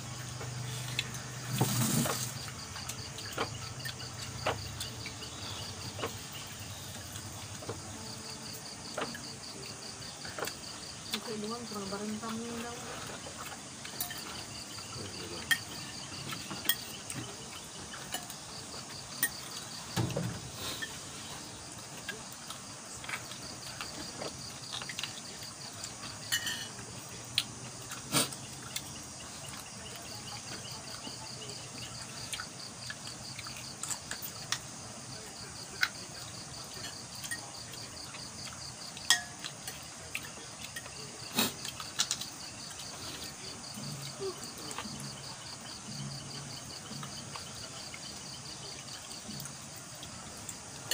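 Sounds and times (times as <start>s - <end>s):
night insects trilling: 0.0s - 50.9s
clinks of plates and spoons: 13.9s - 14.5s, 15.4s - 17.0s, 17.9s - 18.4s, 26.2s - 26.8s, 39.0s - 39.8s.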